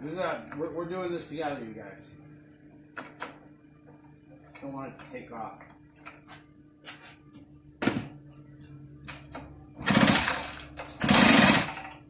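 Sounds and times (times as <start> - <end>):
engine cranking rattle: 9.8 - 12.0.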